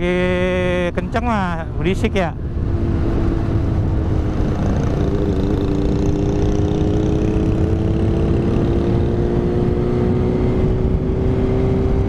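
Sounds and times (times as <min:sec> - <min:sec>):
wind rumble on microphone: 0:00.0 - 0:12.0
motorcycle engine running at speed: 0:02.4 - 0:12.0.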